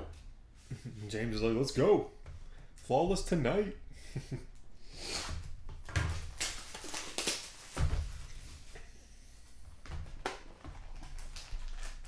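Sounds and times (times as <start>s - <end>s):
plastic wrap tearing and crackling: 5.8s - 8.8s, 10.4s - 12.0s.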